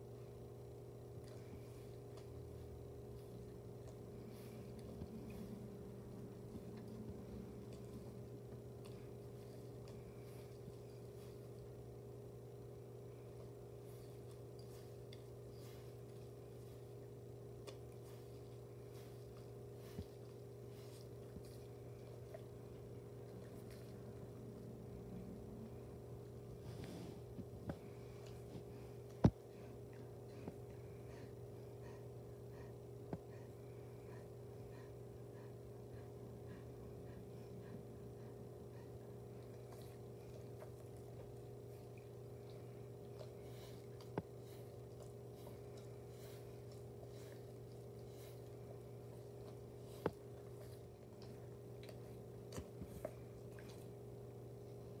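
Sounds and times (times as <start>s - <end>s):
steady low hum: 0.0s - 55.0s
dog licking leather: 39.2s - 54.8s.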